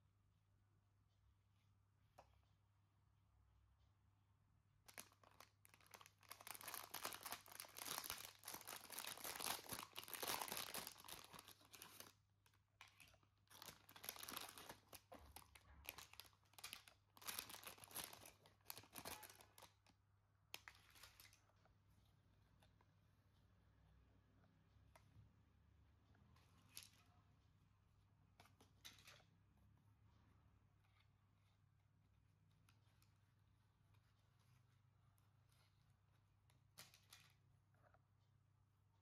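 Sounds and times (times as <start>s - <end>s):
plastic packaging crinkling: 4.9s - 19.9s.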